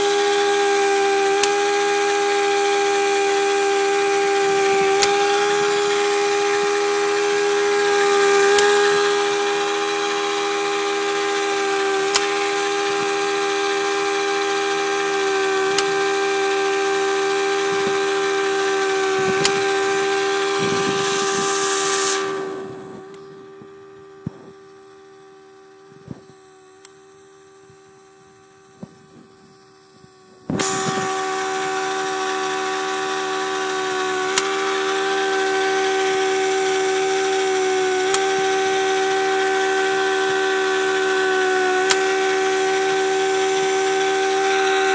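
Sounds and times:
pipe bevelling machine whine: 0.0 - 44.9
sharp clicks: 4.9 - 15.1, 15.7 - 16.2, 19.2 - 19.8, 20.6 - 25.1, 25.8 - 27.8, 34.3 - 35.0
air hiss: 17.5 - 26.6, 27.6 - 44.9.

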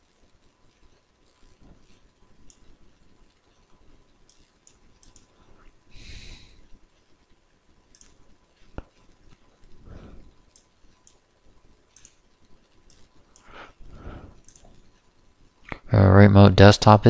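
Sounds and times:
computer mouse clicking: 0.8 - 2.8, 4.2 - 5.4, 7.9 - 9.7, 10.3 - 11.3, 11.9 - 13.6, 14.3 - 15.1.

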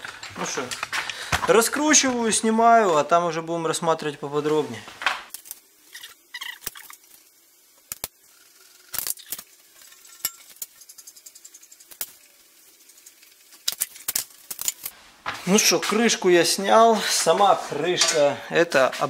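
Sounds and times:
faint fast ticking: 10.2 - 13.5.

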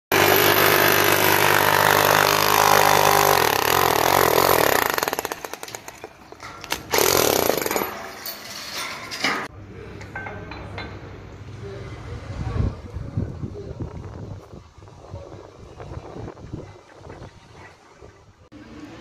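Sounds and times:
angle grinder cutting stone: 0.1 - 5.4.

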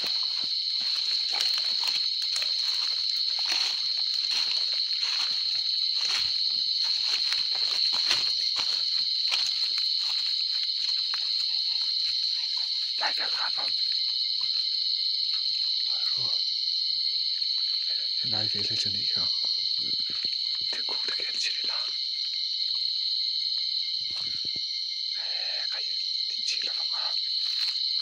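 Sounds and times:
footsteps through undergrowth: 0.0 - 14.3, 27.3 - 28.0
crickets chirping: 0.0 - 28.0.

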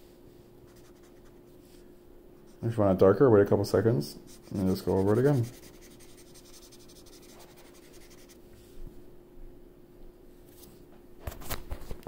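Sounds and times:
marker scribbling on paper: 0.7 - 1.4, 4.3 - 8.4.

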